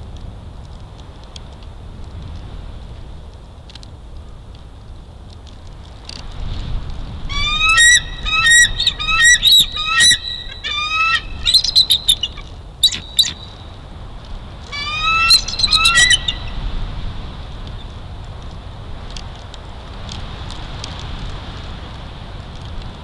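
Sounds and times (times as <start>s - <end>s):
eagle chattering calls: 7.3s - 13.6s, 14.7s - 16.6s.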